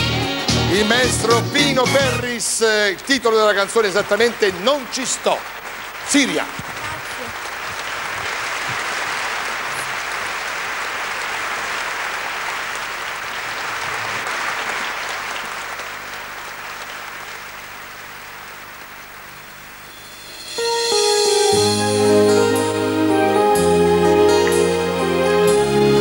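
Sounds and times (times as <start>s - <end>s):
orchestra playing: 0.0s - 3.0s, 19.9s - 26.0s
audience applauding: 0.0s - 19.9s.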